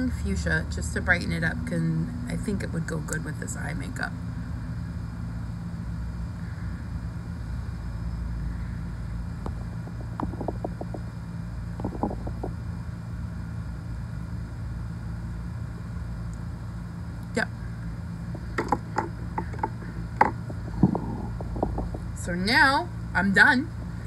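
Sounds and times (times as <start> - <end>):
low background hum: 0.0 - 24.0.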